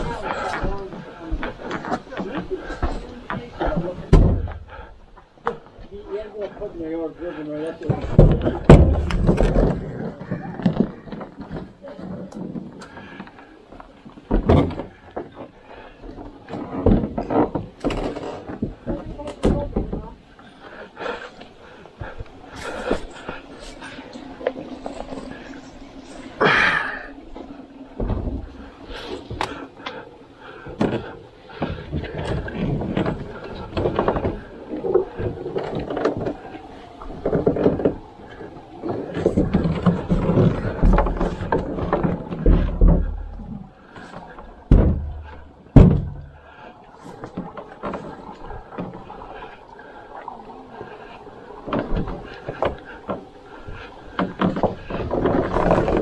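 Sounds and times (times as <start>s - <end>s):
rough rustling: 6.8s - 56.0s
canoe knocks and scrapes: 7.8s - 13.4s, 16.2s - 20.1s, 30.7s - 49.6s, 51.6s - 56.0s.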